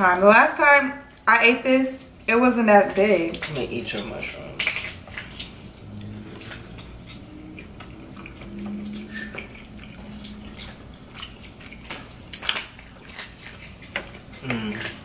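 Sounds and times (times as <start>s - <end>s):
chewing and eating sounds: 2.9s - 15.0s
forks scraping food trays: 3.3s - 15.0s.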